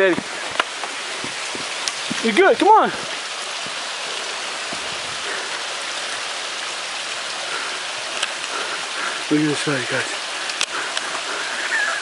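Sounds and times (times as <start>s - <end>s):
creek water running: 0.0s - 12.0s
faint clicks: 8.1s - 8.6s, 10.4s - 11.3s.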